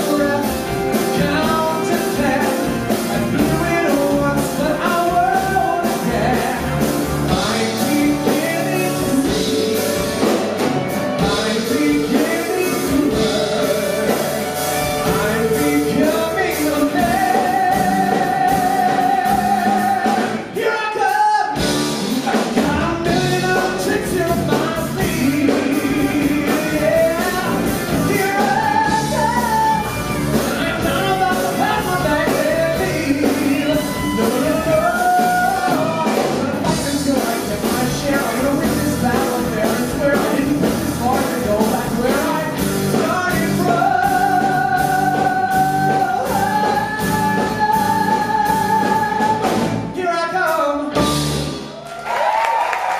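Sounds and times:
man singing rock song: 0.0 - 51.5
live band with drums: 0.0 - 52.9.

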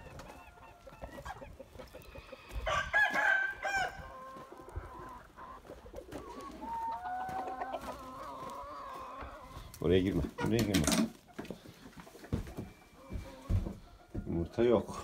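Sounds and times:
hens clucking: 0.0 - 15.0
rooster crowing: 2.5 - 4.4.

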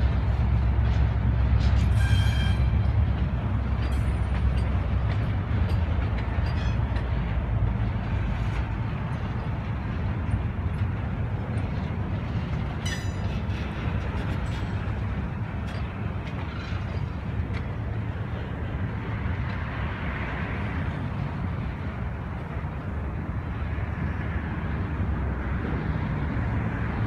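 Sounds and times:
deep locomotive engine rumble: 0.0 - 27.0
train cars rolling on rails: 0.0 - 27.0
high wheel squeals: 1.8 - 2.9, 6.4 - 6.9, 12.8 - 13.4.

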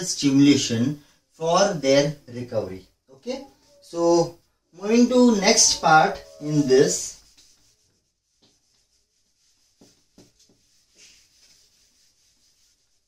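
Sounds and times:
eraser scuffing on whiteboard: 7.1 - 13.0.

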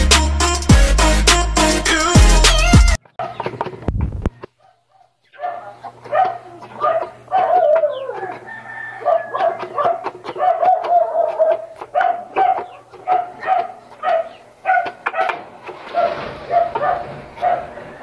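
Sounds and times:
chickens calling: 1.6 - 18.0.

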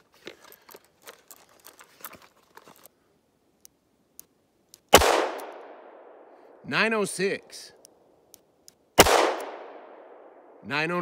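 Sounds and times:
revolver gunshot with echo: 4.9 - 6.2, 9.0 - 10.4.

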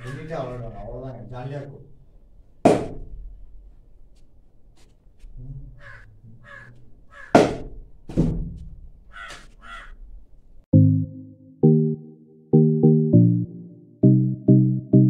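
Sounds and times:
cricket bat striking ball: 2.7 - 3.1, 7.3 - 8.5
crows cawing: 5.8 - 7.6, 9.1 - 10.0.

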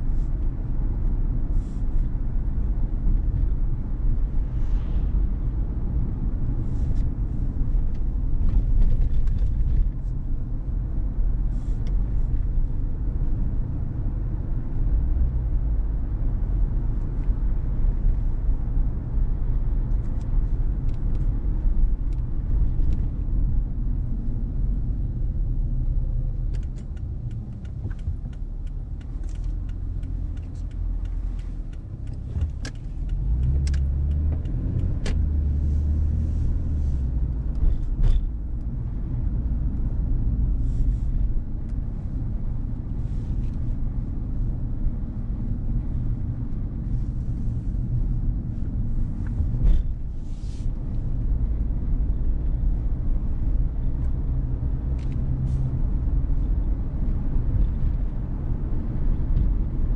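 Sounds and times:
car road and engine rumble: 0.0 - 59.9
light clicks and ticks: 26.4 - 35.3.

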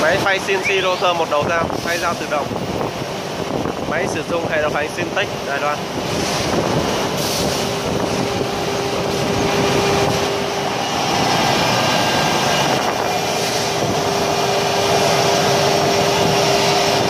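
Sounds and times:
wood router rushing noise: 8.2 - 17.0.

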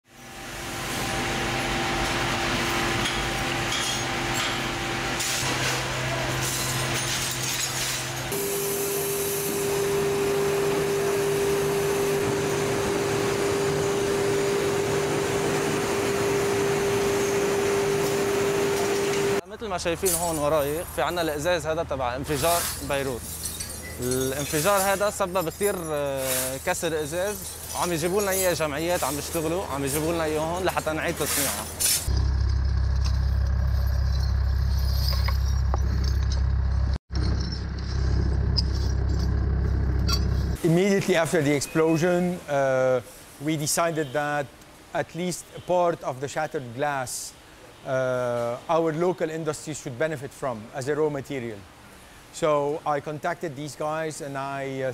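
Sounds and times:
broken glass clinking: 6.4 - 8.3, 22.6 - 32.1, 33.0 - 36.6, 37.2 - 39.4
furnace burner rushing: 8.0 - 19.4
low engine rumble: 24.0 - 40.6.

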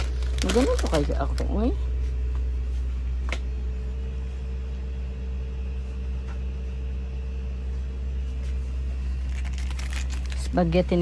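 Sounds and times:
faint steady whine: 0.0 - 11.0
low machine hum: 0.0 - 11.0.

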